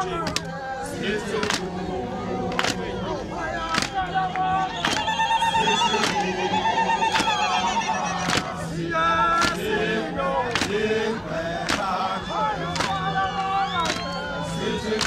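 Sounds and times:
group singing a war song: 0.0 - 15.0
sharp rhythmic beat: 1.1 - 14.1
high wavering voice notes: 5.0 - 8.3.

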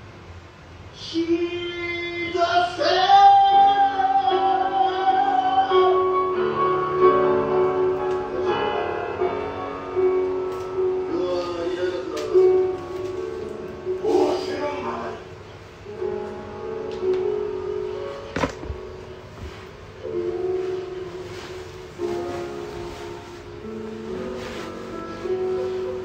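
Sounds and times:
person singing long notes: 1.0 - 12.8
piano accompaniment: 1.0 - 26.0.

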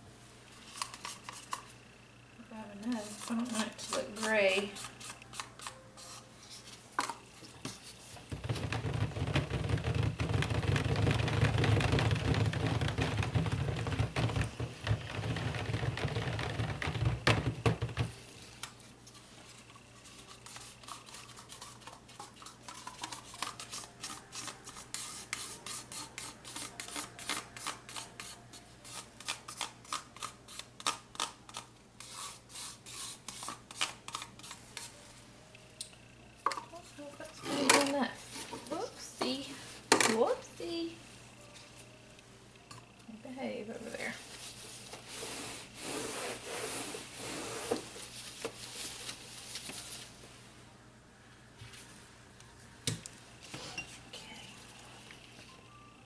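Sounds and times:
clicks and knocks against plastic tub: 8.3 - 18.1.

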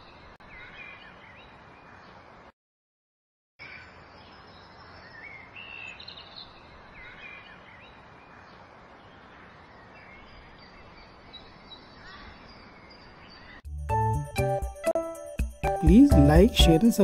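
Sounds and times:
birds chirping: 0.0 - 2.5, 3.6 - 14.2
outdoor background noise: 0.0 - 2.6, 3.6 - 13.6.

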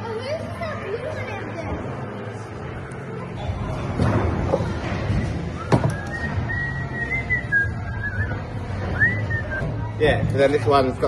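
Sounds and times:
person whistling: 5.6 - 8.4, 9.0 - 9.6.

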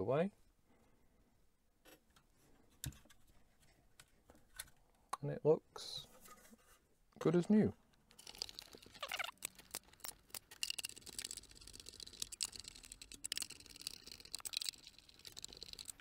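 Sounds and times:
screw squeaks: 8.3 - 16.0.

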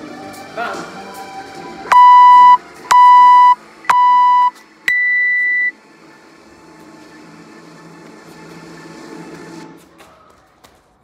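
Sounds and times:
longer higher beep: 1.9 - 5.7
short timer beeps: 1.9 - 5.7.

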